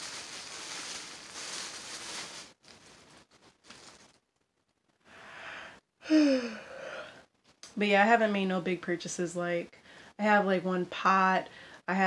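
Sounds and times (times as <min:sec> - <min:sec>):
plastic bags rustling: 0:00.0 - 0:04.4.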